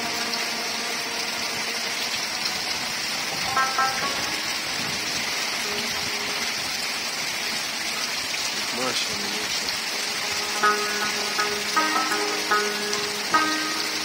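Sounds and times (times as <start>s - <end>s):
heavy rain falling: 0.0s - 14.0s
pitched notes: 3.2s - 6.6s, 10.0s - 14.0s.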